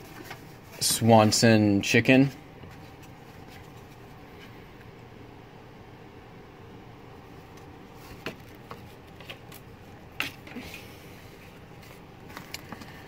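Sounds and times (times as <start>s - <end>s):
paper and cardboard rustling: 0.0s - 1.4s, 2.6s - 4.6s, 7.4s - 13.0s
low room hum: 0.0s - 13.0s.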